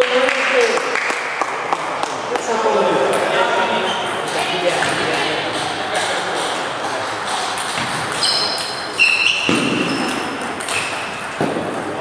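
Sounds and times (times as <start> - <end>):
voices in a hall: 0.0 - 12.0
shoes squeaking on wooden floor: 3.4 - 12.0
ping pong ball clicking: 4.0 - 11.5.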